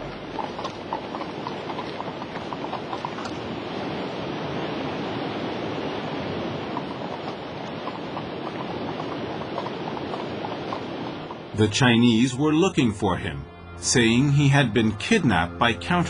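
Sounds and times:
hooves clopping on wood: 0:00.0 - 0:03.5, 0:06.7 - 0:11.4
rushing white water: 0:00.0 - 0:12.6.

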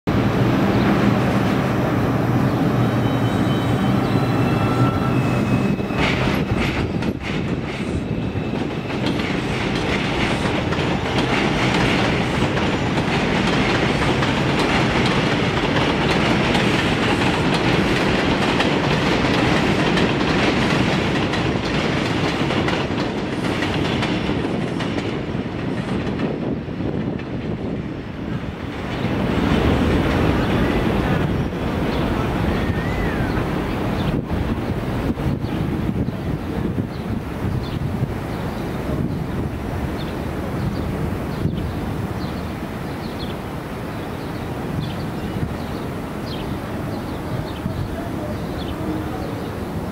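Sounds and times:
train wheels clacking on rails: 0:04.6 - 0:33.2.

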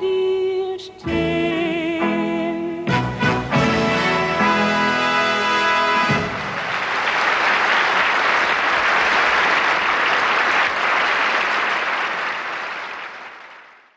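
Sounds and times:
large audience applauding: 0:05.5 - 0:13.9.

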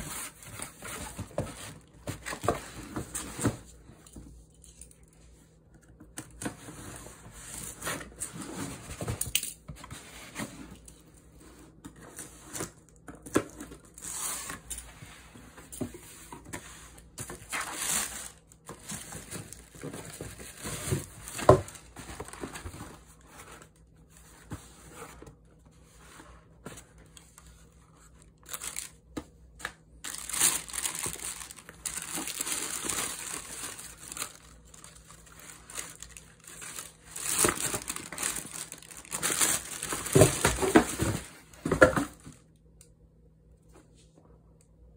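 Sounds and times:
tissue paper crinkling: 0:17.4 - 0:23.0, 0:28.4 - 0:28.9, 0:30.0 - 0:41.2
packing tape tearing: 0:30.1 - 0:34.9.

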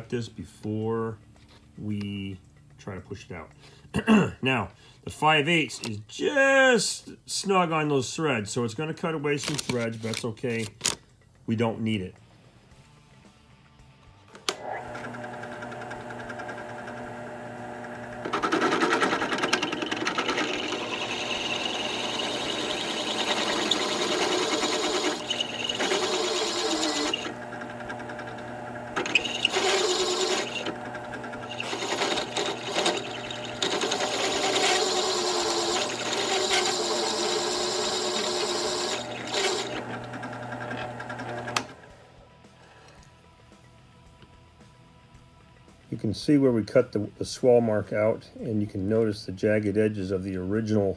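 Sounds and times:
drill press motor humming: 0:14.4 - 0:42.0
hole saw cutting metal: 0:14.5 - 0:41.8.

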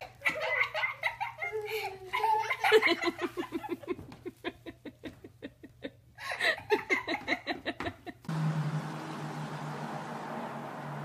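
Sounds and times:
person laughing: 0:00.0 - 0:08.3.

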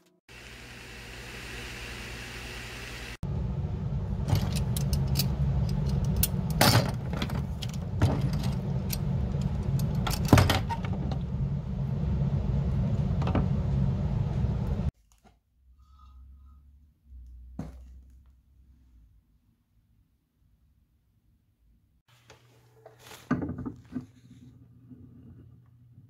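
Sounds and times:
low rumble: 0:03.2 - 0:14.9.

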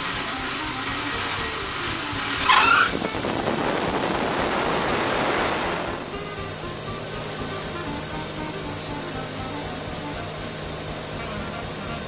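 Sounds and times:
band sawmill running: 0:00.0 - 0:12.0
saw blade squeal: 0:00.4 - 0:03.3.

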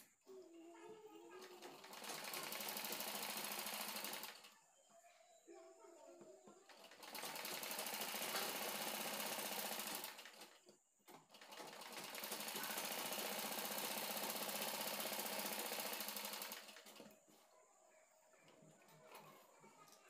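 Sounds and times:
sewing machine stitching: 0:01.4 - 0:04.6, 0:06.7 - 0:17.2.

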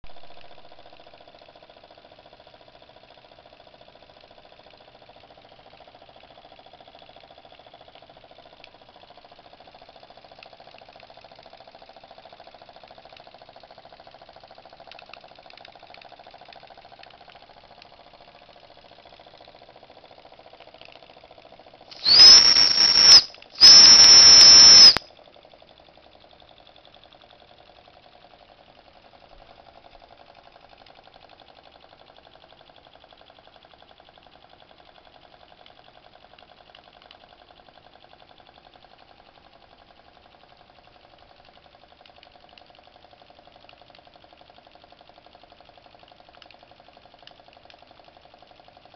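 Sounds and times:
rushing steam hiss: 0:22.0 - 0:25.0
steam whistle blasts: 0:22.0 - 0:25.0.

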